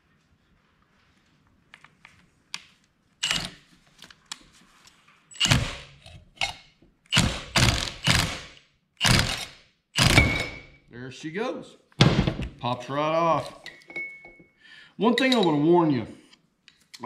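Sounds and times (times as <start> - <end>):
impact wrench bursts: 3.2 - 3.6, 5.3 - 5.9, 7.1 - 10.8.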